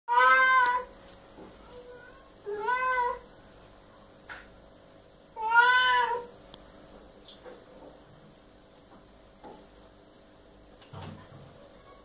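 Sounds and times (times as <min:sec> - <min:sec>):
cat meowing: 0:00.1 - 0:00.9, 0:02.5 - 0:03.2, 0:05.4 - 0:06.3.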